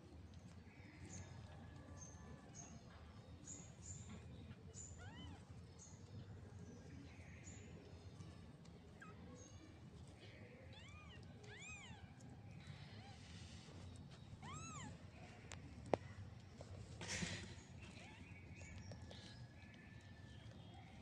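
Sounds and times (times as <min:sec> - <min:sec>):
kittens mewing faintly: 0:14.3 - 0:15.6.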